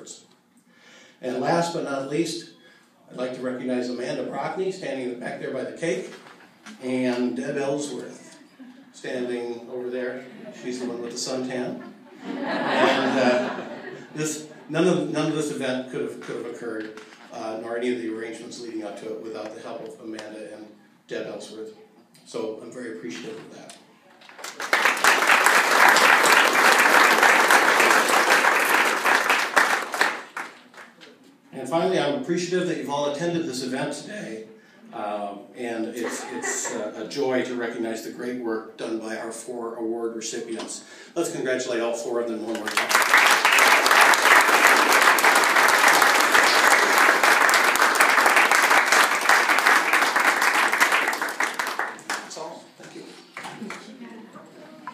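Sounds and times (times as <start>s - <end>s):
audience applauding: 24.3s - 31.0s, 42.5s - 52.6s.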